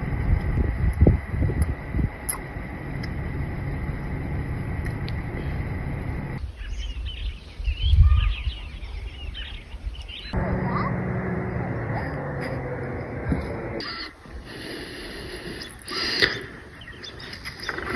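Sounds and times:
low rumble with faint hum: 0.0 - 6.4, 10.0 - 15.9
wind gust on microphone: 0.0 - 14.4
songbirds chirping: 1.3 - 17.9.

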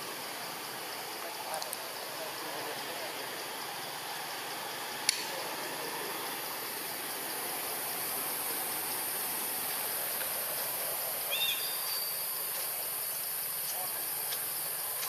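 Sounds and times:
hiss-like forest background: 0.0 - 15.0.

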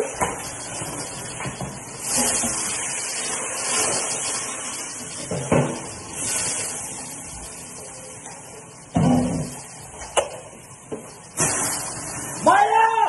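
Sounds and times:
pan fire rushing hiss: 11.4 - 12.4.

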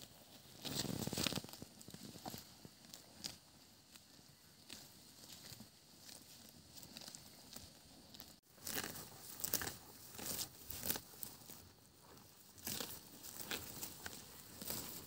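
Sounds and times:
buffalo ripping grass: 5.4 - 11.7, 12.4 - 15.0.

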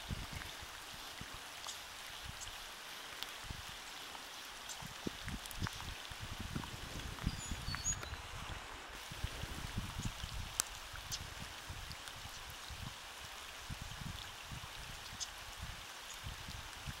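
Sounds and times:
light rain on pond: 0.0 - 17.0
raindrop ticks: 1.6 - 3.6, 4.2 - 8.2, 9.9 - 12.5.

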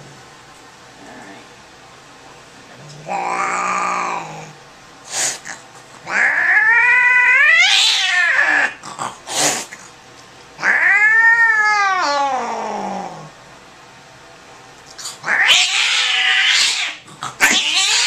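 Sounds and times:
cat yowling angrily: 3.0 - 4.5, 6.0 - 8.8, 10.6 - 13.3, 15.2 - 18.0.

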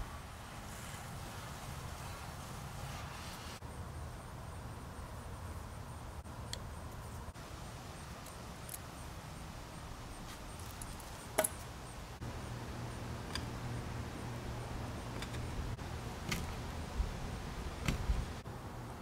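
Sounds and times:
low background hum: 3.7 - 19.0.

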